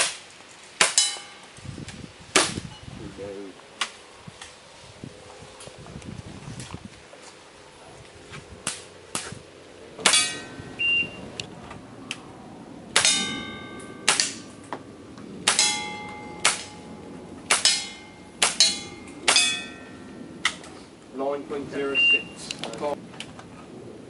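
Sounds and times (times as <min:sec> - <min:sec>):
steel plate ringing: 0:00.8 - 0:01.6, 0:10.0 - 0:11.2, 0:13.0 - 0:14.7, 0:15.4 - 0:20.6
pistol shots: 0:14.0 - 0:14.5, 0:17.5 - 0:19.7.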